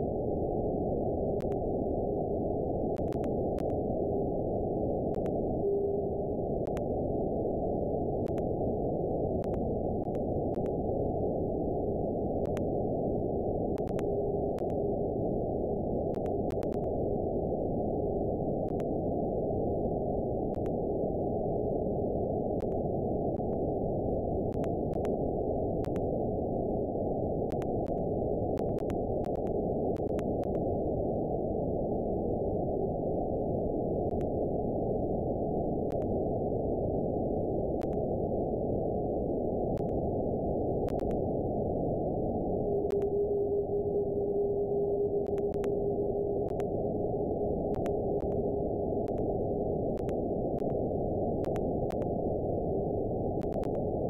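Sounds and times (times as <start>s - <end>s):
faint clicks: 1.4s - 1.6s, 3.0s - 3.8s, 5.1s - 5.4s, 6.6s - 6.9s, 9.4s - 10.8s, 12.4s - 12.7s, 13.8s - 14.8s, 16.1s - 16.9s, 18.7s - 18.9s, 20.5s - 20.8s, 22.6s - 22.8s, 24.5s - 25.2s, 25.8s - 26.1s, 27.5s - 28.0s, 28.6s - 30.6s, 34.1s - 34.3s, 39.7s - 40.0s, 40.9s - 41.2s, 42.8s - 43.1s, 45.2s - 45.8s, 46.4s - 46.7s, 47.7s - 48.4s, 50.0s - 50.8s, 51.4s - 52.1s, 53.4s - 53.9s
radio receiver hiss: 42.3s - 52.1s.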